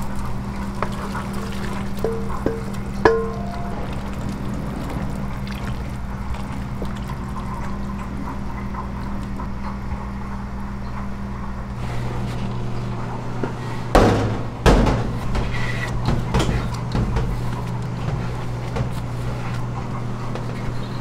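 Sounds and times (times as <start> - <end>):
ladle stirring: 0.0 - 8.2
stock bubbling in a pot: 0.0 - 9.6
low kitchen hum: 0.0 - 21.0
loud thuds: 14.0 - 17.6.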